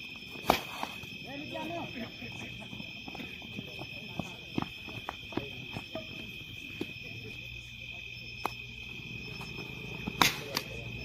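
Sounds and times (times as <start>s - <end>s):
insects chirping: 0.0s - 11.0s
sharp crack: 0.4s - 1.0s, 10.2s - 10.8s.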